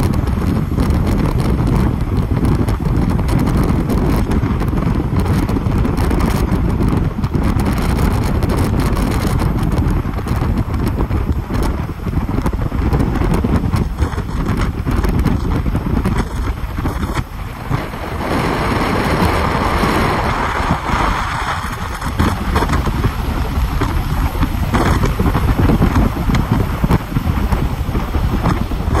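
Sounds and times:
car rumble: 0.0 - 29.0
wind buffeting microphone: 0.0 - 29.0
tyres hissing on wet road: 16.4 - 29.0.

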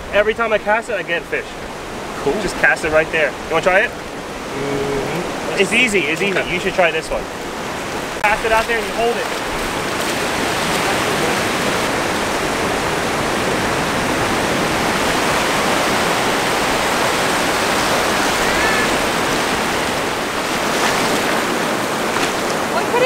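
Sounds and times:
small waves breaking: 1.0 - 23.0.

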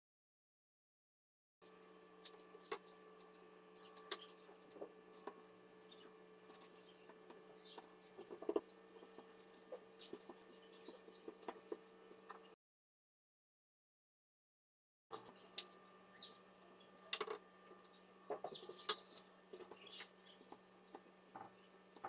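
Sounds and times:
steady low hum: 1.6 - 12.6.

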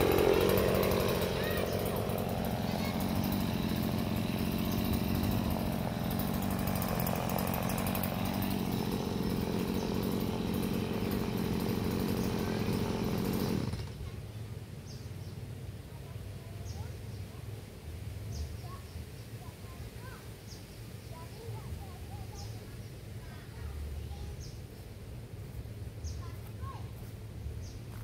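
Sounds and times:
chainsaw engine running: 0.0 - 16.8.

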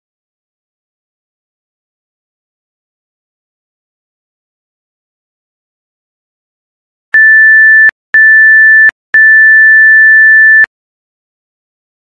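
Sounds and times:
electronic timer beeps: 7.2 - 10.7.

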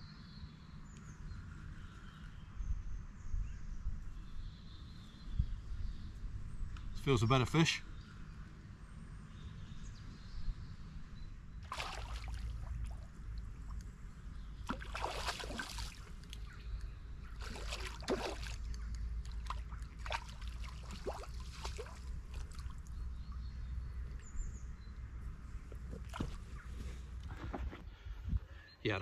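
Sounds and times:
fish splashing in water: 11.6 - 13.1, 14.6 - 16.5, 17.3 - 22.9.

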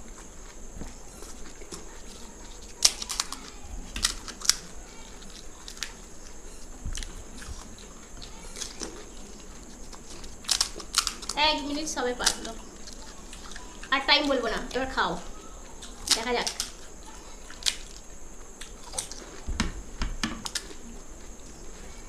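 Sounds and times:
chewing: 0.0 - 11.4, 12.2 - 14.0, 15.3 - 19.5
crisp shells cracking: 2.5 - 6.4, 7.0 - 11.4, 15.9 - 19.3.

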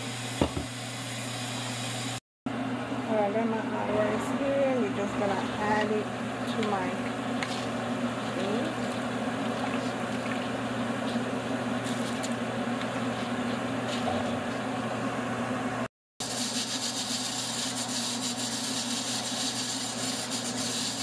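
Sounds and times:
low steady hum: 2.6 - 15.9
pot of water boiling: 5.1 - 15.0.

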